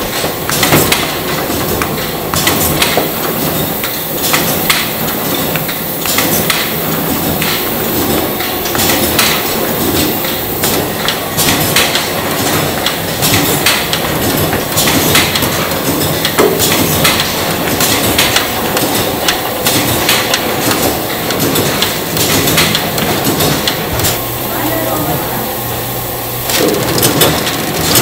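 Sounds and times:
conveyors clicking and clattering: 0.0 - 28.0.

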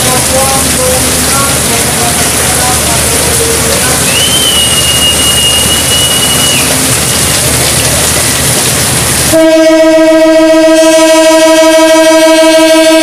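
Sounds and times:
heavy rain: 0.0 - 13.0
passing train rolling: 0.0 - 13.0
locomotive horn: 4.0 - 7.2, 9.3 - 13.0.

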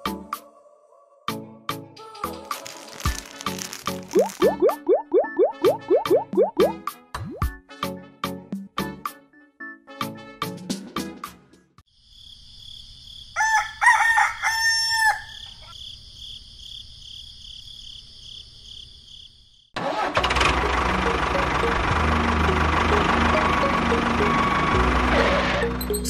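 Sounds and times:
rooster crowing: 13.4 - 15.7
tractor engine running: 19.8 - 26.0.

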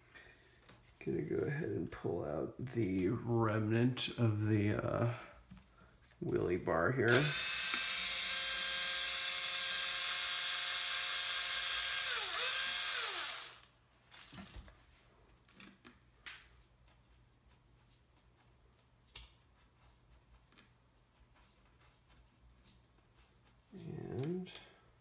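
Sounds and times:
electric screwdriver whining: 7.1 - 13.7.

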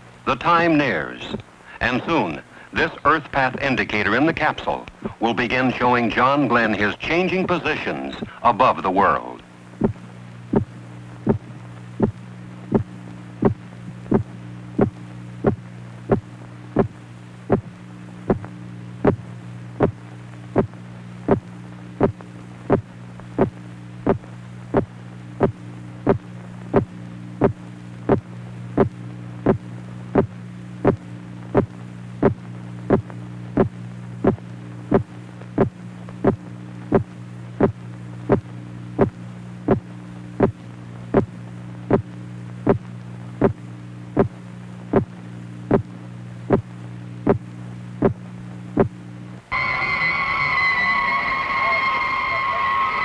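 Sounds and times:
low electronic hum: 0.0 - 53.0
higher electronic tone: 49.5 - 53.0.

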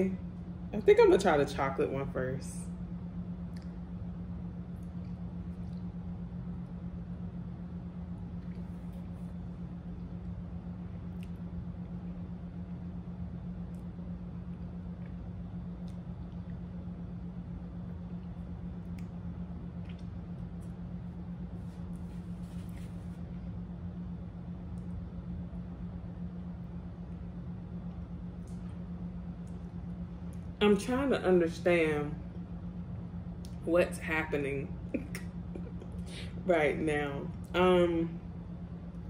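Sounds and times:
steady low hum: 0.0 - 39.0
chewing clicks and smacks: 3.5 - 3.8, 11.0 - 11.6, 13.6 - 16.7, 18.0 - 20.8.

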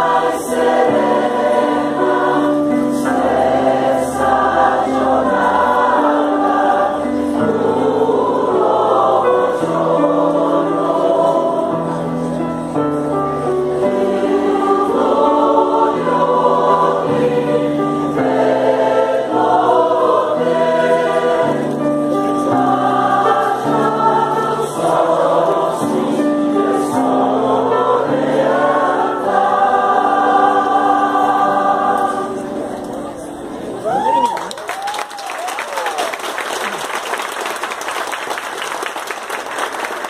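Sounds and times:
mixed choir singing in parts: 0.0 - 33.0.

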